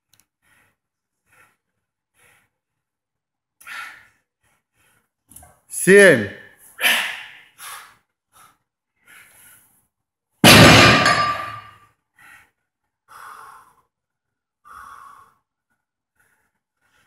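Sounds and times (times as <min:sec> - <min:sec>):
barbell plates clanging on floor: 0:10.4 - 0:11.8
heavy breaths: 0:12.1 - 0:14.0, 0:14.6 - 0:17.0.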